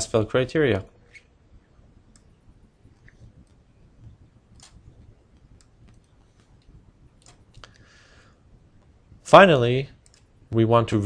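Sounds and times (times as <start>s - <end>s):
computer mouse clicks: 2.1s - 7.9s, 10.0s - 10.3s.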